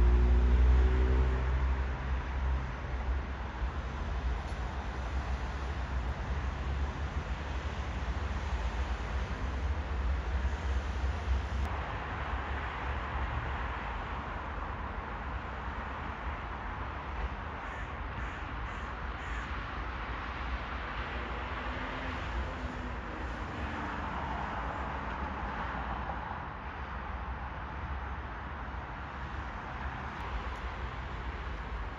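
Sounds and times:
distant city traffic: 0.0s - 31.9s
crows cawing: 17.6s - 19.6s.

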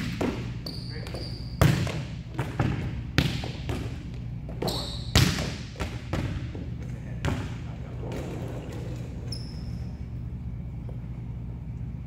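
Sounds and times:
high squeak: 9.3s - 10.0s.

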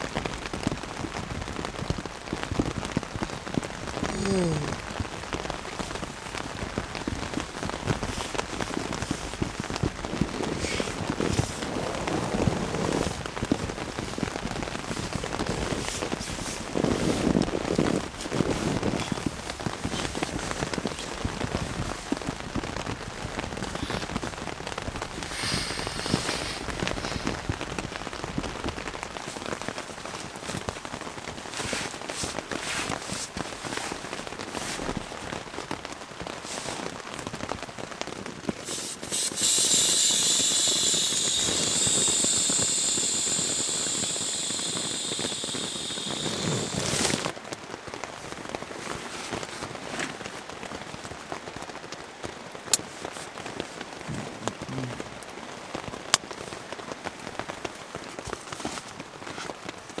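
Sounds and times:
rain pattering on a tent: 0.0s - 60.0s
air hissing out of a valve: 25.3s - 27.4s, 38.6s - 47.3s
nylon gear rustling: 29.2s - 35.3s, 41.2s - 47.3s.

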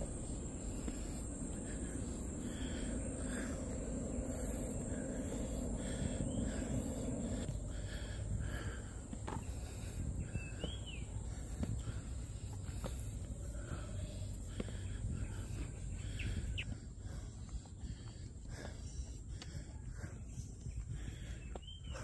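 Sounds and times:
steady low rumble: 0.0s - 22.0s.

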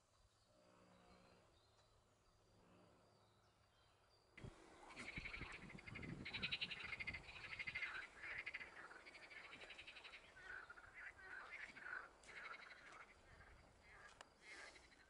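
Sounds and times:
rapid rattling animal calls: 4.4s - 15.0s.

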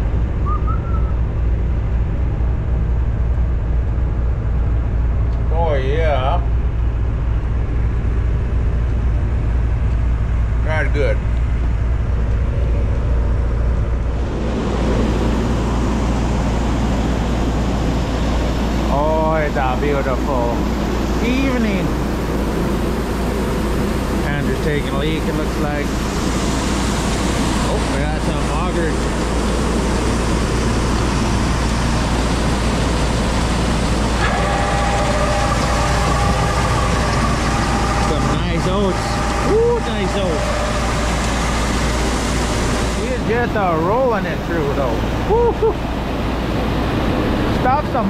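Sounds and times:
low motor drone: 0.0s - 48.0s
pickup truck engine rumbling: 0.0s - 48.0s
steady multi-pitch whine: 0.0s - 48.0s
rushing noise: 10.6s - 48.0s.

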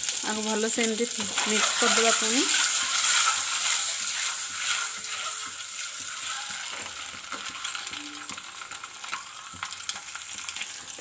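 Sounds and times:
eggs sizzling in oil: 0.0s - 11.0s
stirring scrapes and knocks: 1.2s - 7.8s.

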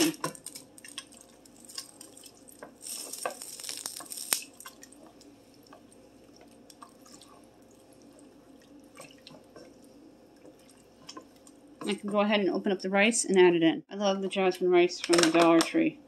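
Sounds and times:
spoon stirring wet mixture: 0.1s - 12.3s.

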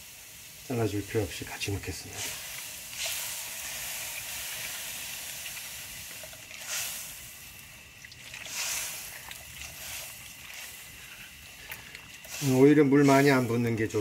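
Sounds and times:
hot liquid sizzling in a wok: 0.0s - 14.0s
liquid sloshing: 5.4s - 13.9s.

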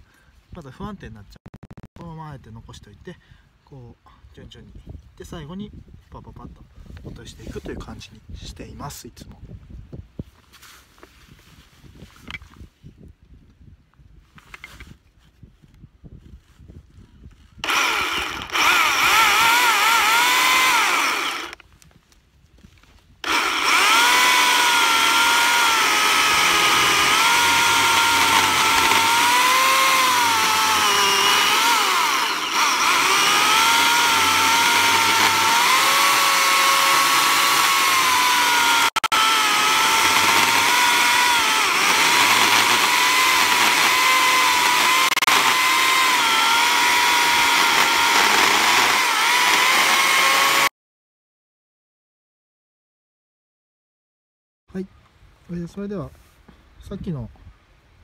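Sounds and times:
chainsaw cutting through log: 17.6s - 21.6s, 23.2s - 50.7s.

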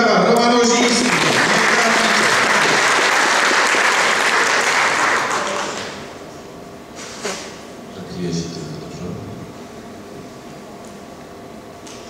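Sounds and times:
audience applauding: 0.7s - 6.1s.

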